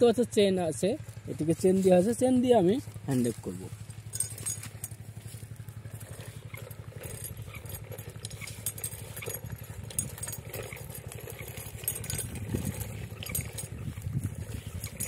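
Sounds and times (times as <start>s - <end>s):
toy wheels rolling on concrete: 4.0s - 15.0s.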